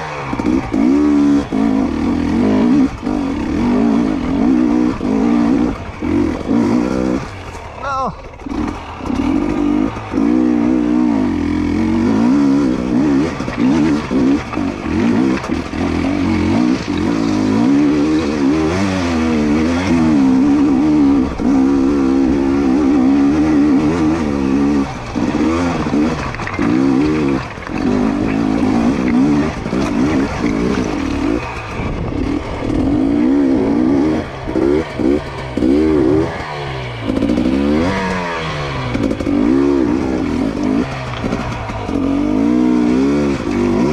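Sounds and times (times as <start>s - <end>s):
dirt bike engine revving: 0.0s - 43.9s.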